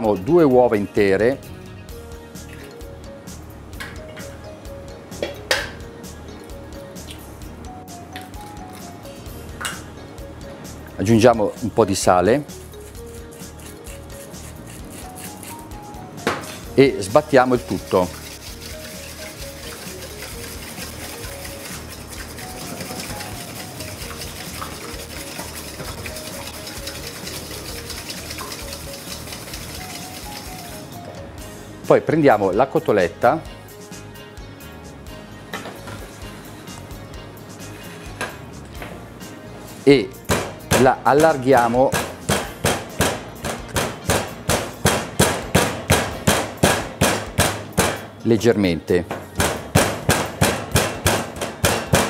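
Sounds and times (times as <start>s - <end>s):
faint background music: 0.0s - 52.0s
fork beating eggs in metal bowl: 12.5s - 15.8s, 17.1s - 30.9s
meat pounder striking meat: 40.3s - 48.1s, 49.1s - 52.0s.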